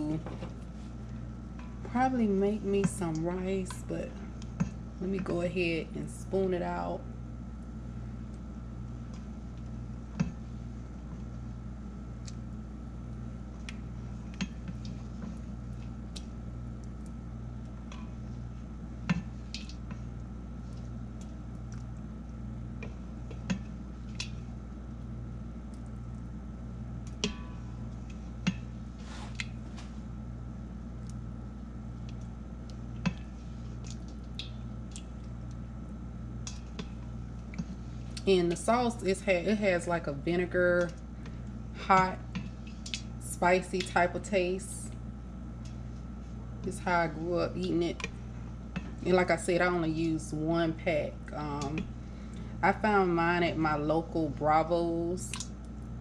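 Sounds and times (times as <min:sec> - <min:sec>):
steady low hum: 0:00.0 - 0:56.0.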